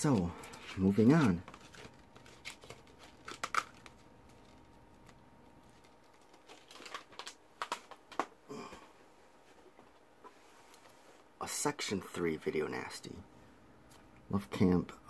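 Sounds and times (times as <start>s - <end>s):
plastic disc cases clicking: 5.8s - 8.3s.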